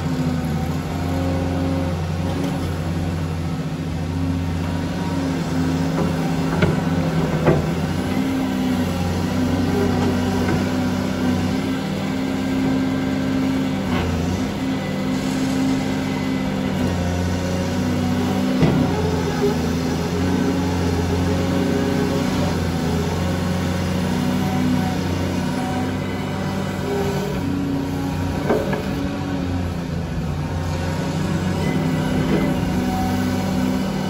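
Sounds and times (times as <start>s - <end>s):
excavator diesel engine drone: 0.0s - 34.0s.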